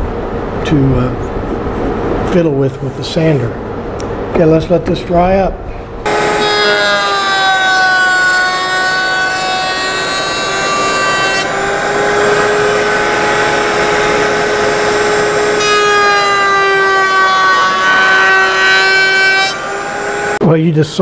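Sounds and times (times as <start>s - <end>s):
wood router whine: 6.0s - 20.4s
rough wood cutting noise: 6.1s - 20.4s.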